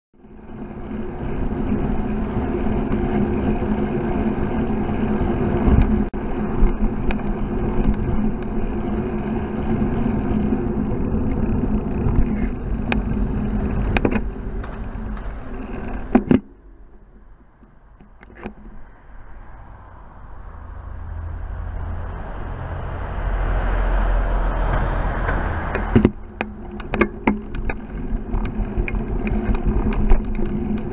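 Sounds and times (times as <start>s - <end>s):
wind noise: 0.2s - 30.9s.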